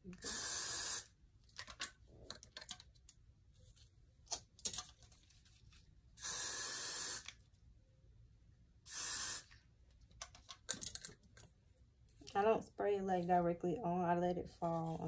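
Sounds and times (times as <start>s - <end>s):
hairspray spraying: 0.2s - 1.1s, 6.2s - 7.3s, 8.9s - 9.6s.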